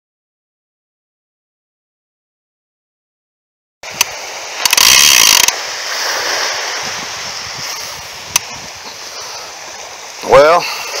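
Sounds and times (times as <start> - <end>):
sharp click: 4.0 - 5.6
fishing reel buzzing: 4.5 - 5.6.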